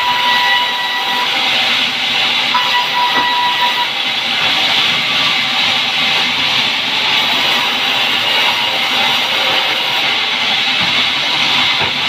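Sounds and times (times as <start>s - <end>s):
band saw cutting wood: 0.0s - 12.0s
faint high whine: 2.5s - 4.0s.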